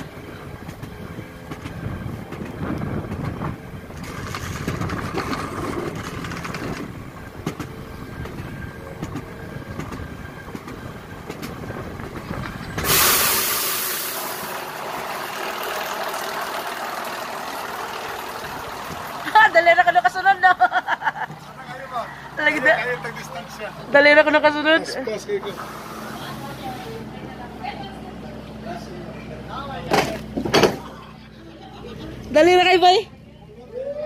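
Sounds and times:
coaster cart wheels rumbling: 0:00.0 - 0:28.4
loud hiss: 0:12.8 - 0:14.7.

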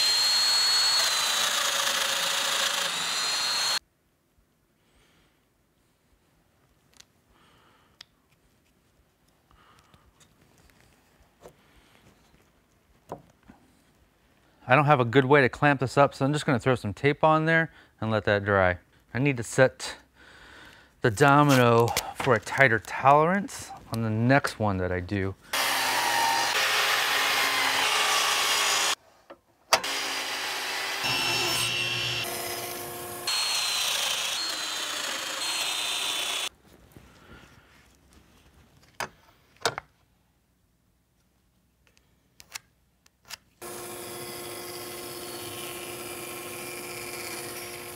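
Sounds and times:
bandsaw slicing wood: 0:00.0 - 0:03.8, 0:25.5 - 0:29.0, 0:29.8 - 0:36.5, 0:43.6 - 0:47.9
miter saw cutting wood: 0:00.0 - 0:03.8, 0:25.5 - 0:29.0, 0:29.8 - 0:36.5, 0:43.6 - 0:47.9
click: 0:41.8 - 0:43.4.

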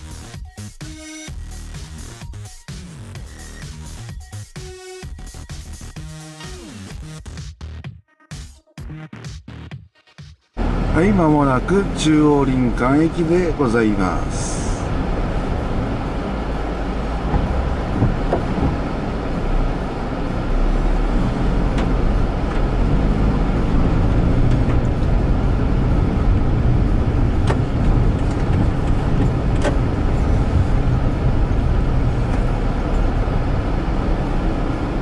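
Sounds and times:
engine and tyre rumble: 0:10.6 - 0:35.0.

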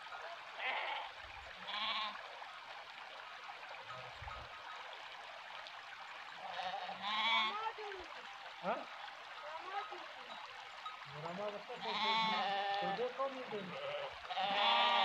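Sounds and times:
water trickling: 0:00.0 - 0:15.0
sheep bleating: 0:00.6 - 0:02.2, 0:06.5 - 0:07.6, 0:11.8 - 0:15.0.

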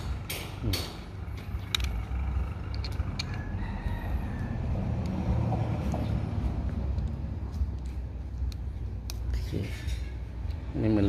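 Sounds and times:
rooster crowing faintly: 0:03.2 - 0:05.4.

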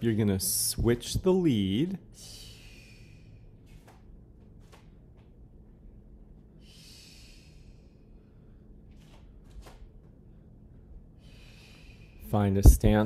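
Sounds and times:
person breathing while exercising: 0:02.1 - 0:04.1, 0:06.5 - 0:09.5, 0:10.2 - 0:12.3.

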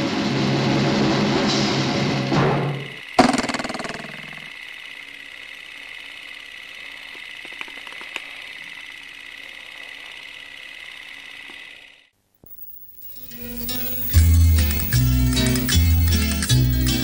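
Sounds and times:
machine hum with high whine: 0:00.1 - 0:17.0
faint clicks: 0:07.0 - 0:11.7.

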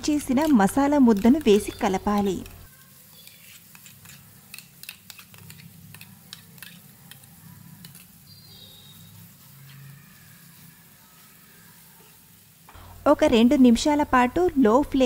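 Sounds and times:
wooden spatula stirring paste: 0:00.0 - 0:12.2
onions frying in oil: 0:00.0 - 0:15.0.

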